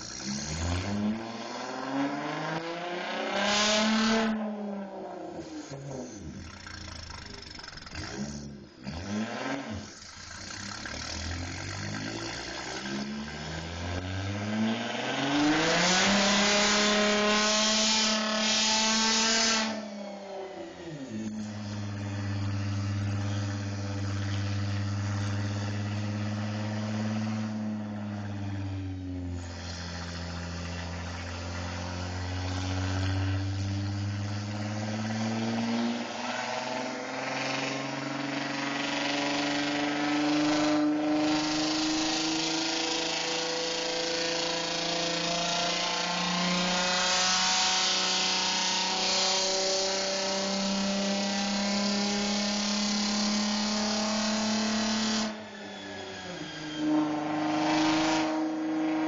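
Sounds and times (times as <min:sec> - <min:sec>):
engine idling: 0:00.0 - 0:01.0, 0:05.3 - 0:14.1, 0:20.5 - 0:47.5
engine revving on dyno: 0:00.0 - 0:59.0.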